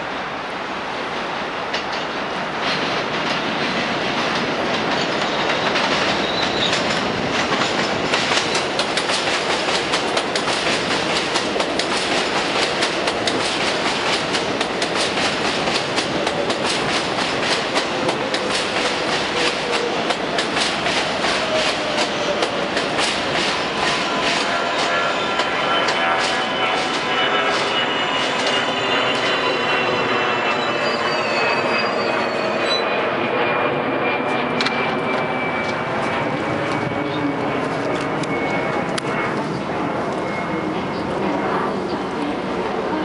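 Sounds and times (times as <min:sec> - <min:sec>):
train wheels clacking: 0:01.7 - 0:31.5.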